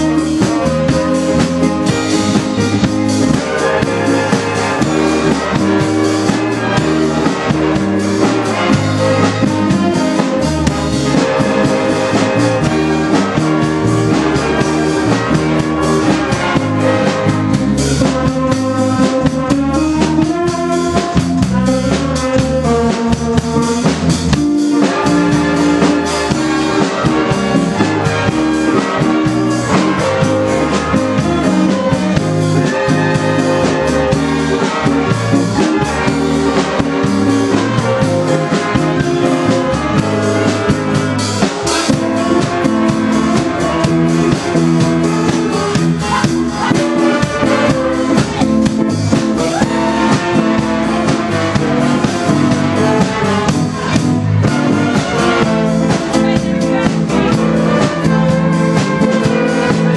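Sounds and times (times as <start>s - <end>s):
bass guitar: 0.0s - 59.9s
drum kit: 0.0s - 59.9s
electric guitar: 0.0s - 59.9s
saxophones: 0.0s - 59.9s
trombone: 0.0s - 59.9s
trumpets: 0.0s - 59.9s.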